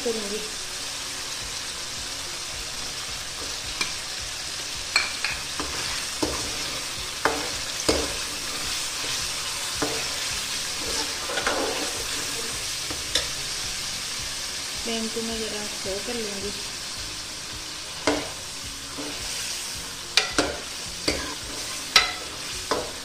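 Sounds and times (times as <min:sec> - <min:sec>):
meat sizzling in oil: 0:00.0 - 0:23.0
metal spoon scraping a pan: 0:04.9 - 0:13.5, 0:17.9 - 0:19.5, 0:20.1 - 0:23.0.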